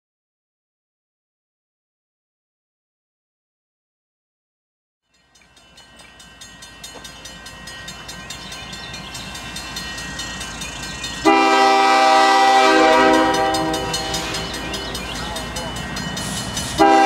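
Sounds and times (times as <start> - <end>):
crossing bell ringing: 5.0 - 17.0
diesel locomotive rumble: 5.5 - 17.0
train air horn chord: 11.2 - 14.9, 16.8 - 17.0.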